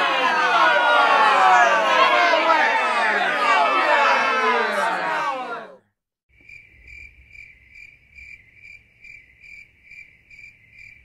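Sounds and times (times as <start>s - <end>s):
crickets chirping: 6.3s - 11.0s.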